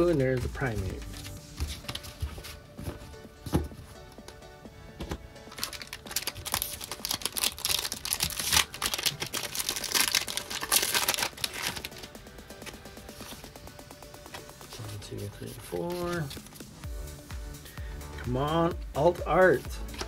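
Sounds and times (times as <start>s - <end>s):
background music: 0.0s - 20.0s
foil wrapper crinkling and tearing: 5.5s - 12.8s.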